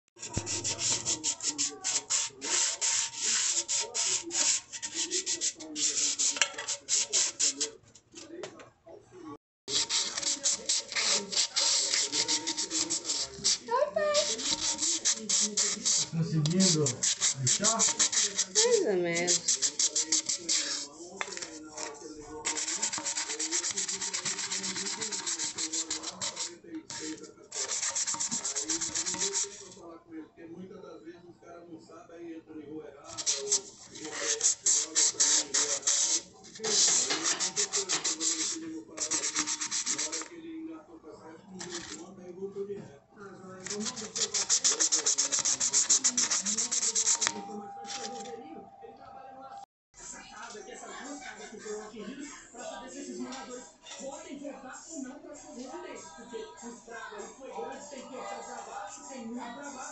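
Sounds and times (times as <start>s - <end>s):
sandpaper rubbing on metal can: 0.2s - 7.8s, 9.7s - 29.8s, 33.1s - 40.4s, 41.6s - 42.0s, 43.6s - 48.2s.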